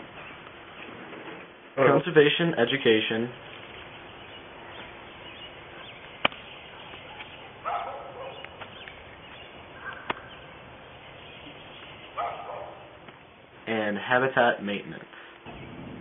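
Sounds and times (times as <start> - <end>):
animal calling: 3.9 - 13.1.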